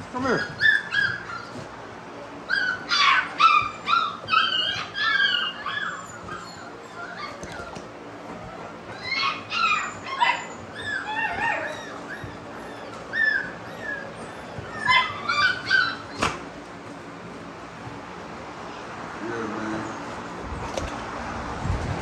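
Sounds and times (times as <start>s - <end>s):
dogs whining and yipping: 0.1s - 1.8s, 2.4s - 16.6s.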